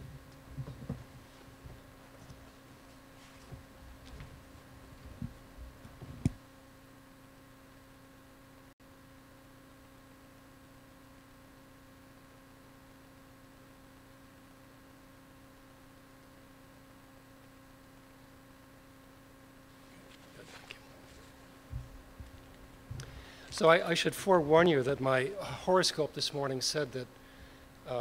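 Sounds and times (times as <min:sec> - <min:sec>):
electrical hum with hiss: 0:00.0 - 0:28.0.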